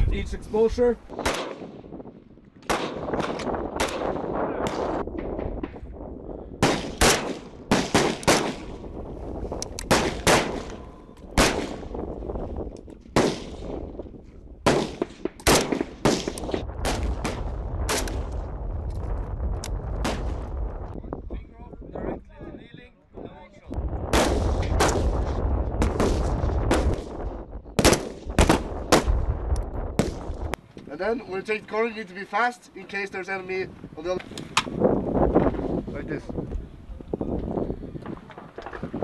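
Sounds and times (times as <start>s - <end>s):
rifle shots with echo: 1.2s - 1.8s, 2.6s - 5.8s, 6.6s - 8.8s, 9.8s - 12.0s, 13.1s - 13.8s, 14.6s - 18.3s, 24.1s - 27.2s, 27.8s - 29.3s.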